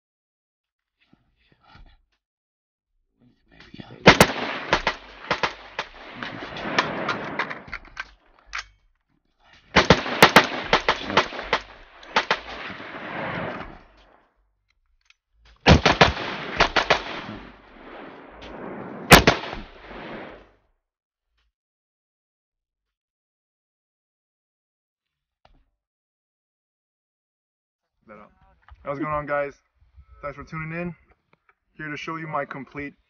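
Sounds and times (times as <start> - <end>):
rapid rifle gunfire: 4.0 - 7.8, 9.8 - 13.7, 15.7 - 18.2, 19.1 - 20.4
gunshot echo: 4.0 - 7.9, 9.8 - 14.1, 15.7 - 20.4.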